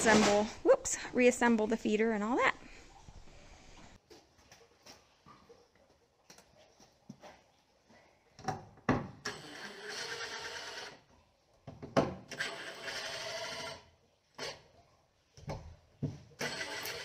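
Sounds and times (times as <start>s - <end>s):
cordless drill running: 16.4s - 17.0s.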